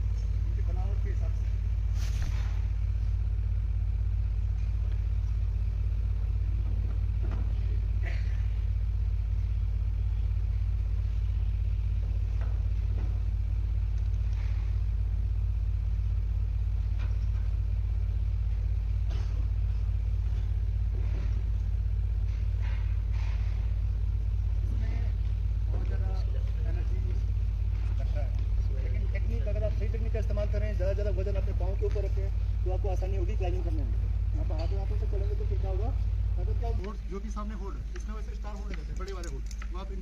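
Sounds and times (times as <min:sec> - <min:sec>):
steady low rumble: 0:00.0 - 0:40.0.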